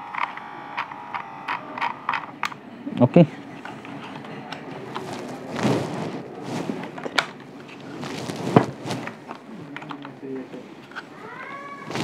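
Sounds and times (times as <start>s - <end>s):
plastic rustling and rubbing: 3.6s - 12.0s.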